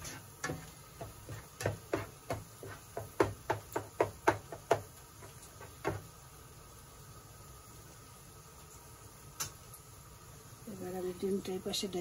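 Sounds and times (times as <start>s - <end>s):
spatula knocking frying pan: 0.0s - 6.1s.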